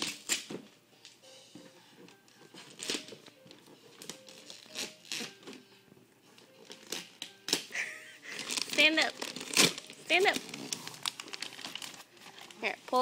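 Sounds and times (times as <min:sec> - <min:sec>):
faint music: 0:00.0 - 0:13.0
wrapping paper crinkling: 0:02.3 - 0:05.6, 0:06.6 - 0:13.0.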